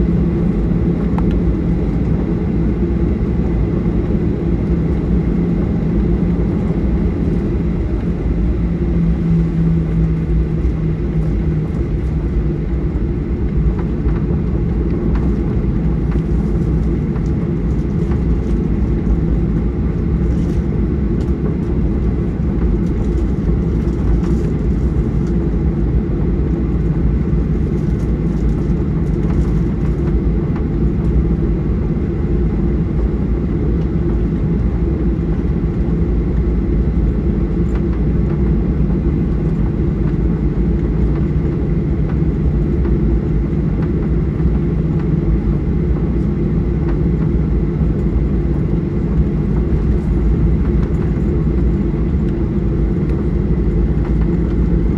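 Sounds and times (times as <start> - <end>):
airliner cabin engine rumble: 0.0 - 54.9
low hum: 0.0 - 54.9.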